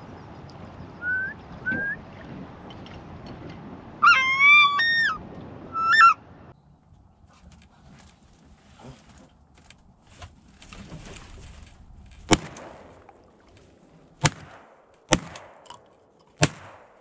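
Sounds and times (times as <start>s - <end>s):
shotgun shots: 12.2s - 13.1s, 14.2s - 15.7s, 16.4s - 17.0s.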